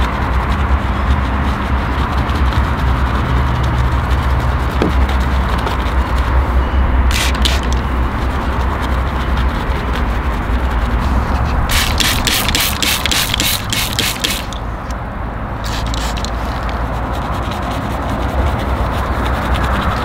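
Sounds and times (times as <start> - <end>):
machine humming: 4.4 - 15.8
short hissing sprays: 7.1 - 7.8, 11.7 - 14.6, 15.6 - 16.3.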